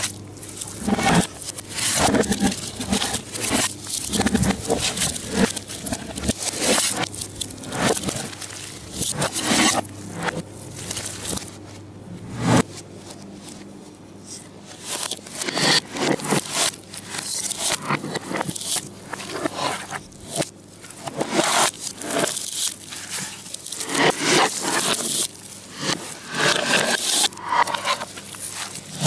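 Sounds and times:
hands squishing sticky mixture: 0.0s - 11.5s.

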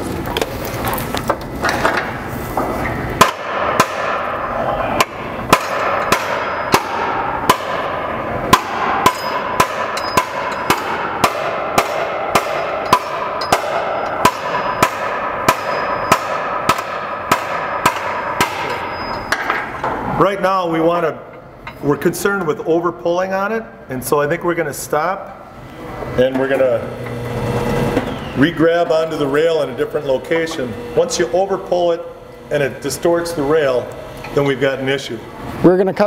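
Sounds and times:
hammer striking steel: 3.2s - 20.0s.

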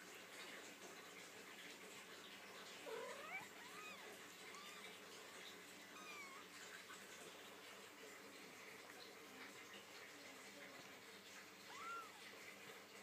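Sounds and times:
faint hiss: 0.0s - 13.0s
kittens mewing: 2.8s - 5.0s, 5.8s - 6.6s, 11.6s - 12.3s.

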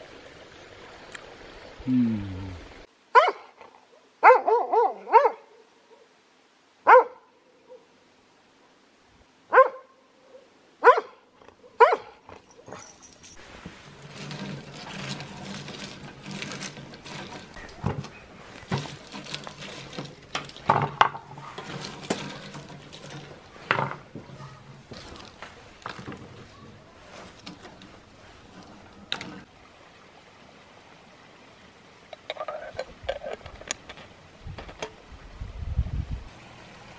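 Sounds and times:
dog barking: 3.2s - 3.6s, 4.2s - 6.1s, 6.8s - 7.9s, 9.5s - 12.2s
walnut shells clattering: 12.3s - 13.4s, 14.0s - 17.8s, 18.6s - 26.4s, 32.2s - 34.9s.

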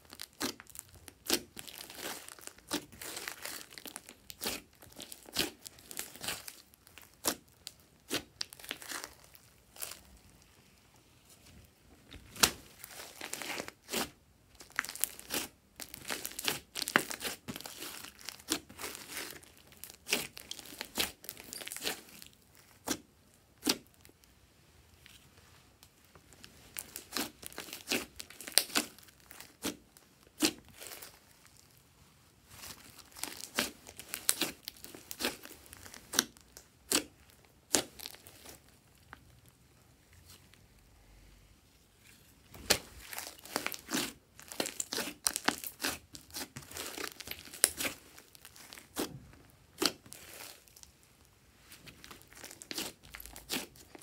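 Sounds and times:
sticky slime crackling and popping: 0.0s - 10.4s, 12.2s - 24.2s, 26.3s - 31.6s, 32.5s - 39.6s, 42.5s - 54.0s.

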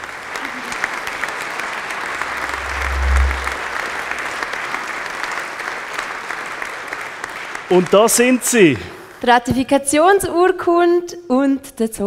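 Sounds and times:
audience applauding: 0.0s - 8.9s
deep low note: 2.2s - 4.0s.

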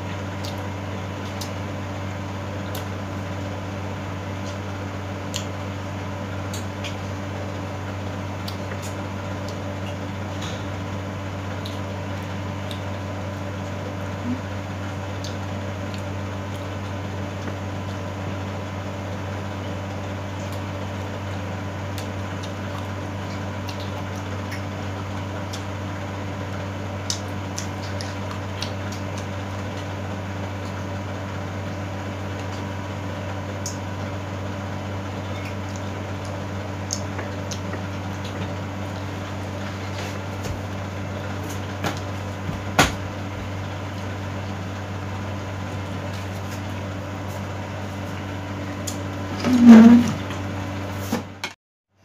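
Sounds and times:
low mechanical hum: 0.0s - 52.0s
person eating and chewing: 27.0s - 31.0s, 35.3s - 42.1s.

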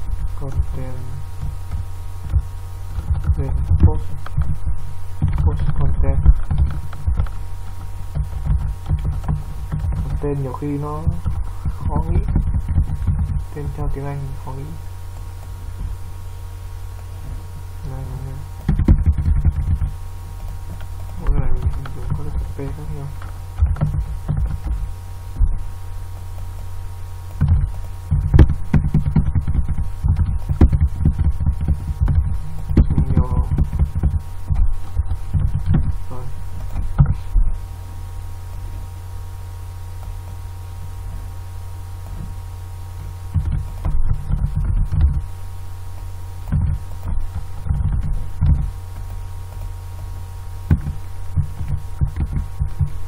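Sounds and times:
low electrical hum: 0.0s - 53.0s
keyboard typing thumps: 1.4s - 4.6s, 5.2s - 14.0s, 18.6s - 37.5s, 43.3s - 45.3s, 46.4s - 53.0s.

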